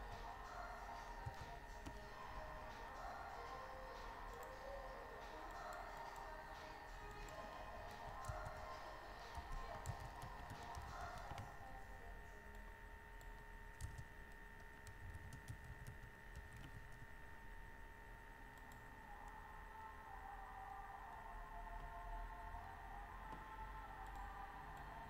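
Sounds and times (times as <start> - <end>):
keyboard typing: 0.0 - 11.8, 12.5 - 17.2
faint electrical whine: 0.0 - 25.0.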